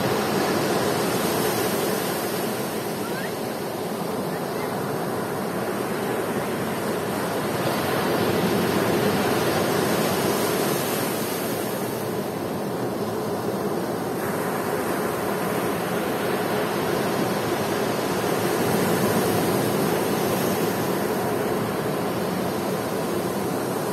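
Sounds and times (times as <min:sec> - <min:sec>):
waves breaking on beach: 0:00.0 - 0:23.9.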